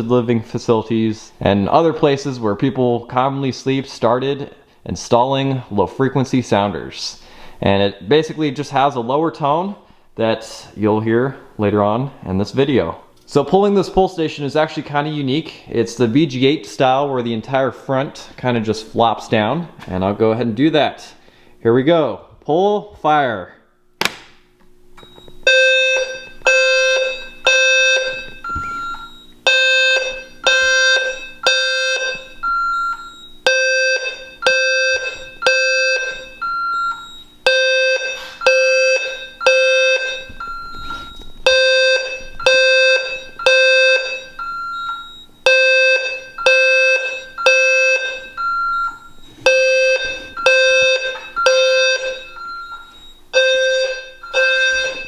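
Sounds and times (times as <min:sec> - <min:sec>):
fire alarm beeping: 0:25.0 - 0:55.0.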